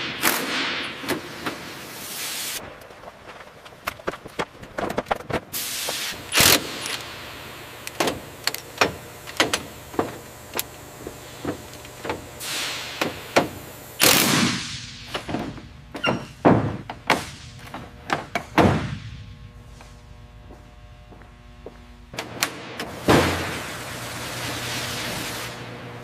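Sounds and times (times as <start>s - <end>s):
short bursts of hiss: 1.9s - 2.6s, 5.6s - 6.2s, 12.4s - 14.0s
tools and metal parts clicking: 6.3s - 7.2s.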